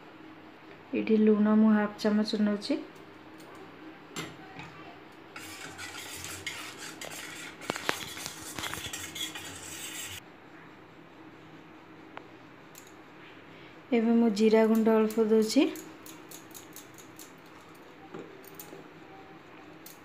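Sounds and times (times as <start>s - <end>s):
whisk scraping metal pot: 5.4s - 10.2s.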